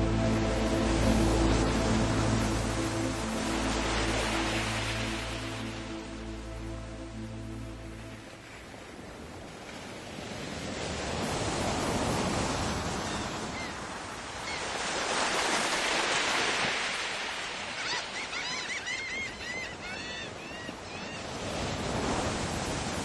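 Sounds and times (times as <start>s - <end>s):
background music: 0.0s - 9.4s.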